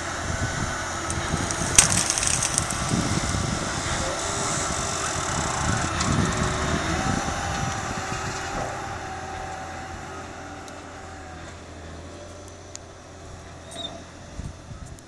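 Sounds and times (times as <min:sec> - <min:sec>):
diesel tractor engine under load: 0:00.0 - 0:15.0
dozer blade pushing soil: 0:00.8 - 0:10.6
track noise: 0:00.9 - 0:08.0.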